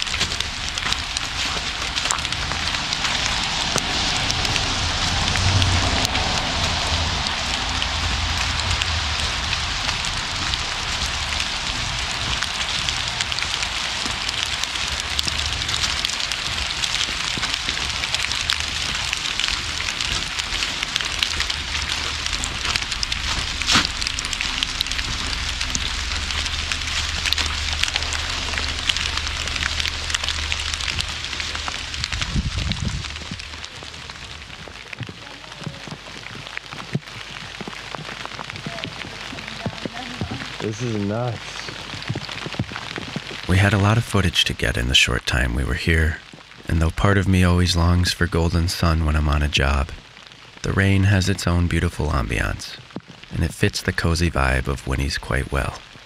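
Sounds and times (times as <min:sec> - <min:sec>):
low steady rumble: 0:00.0 - 0:34.8
rain patter: 0:00.0 - 0:56.0.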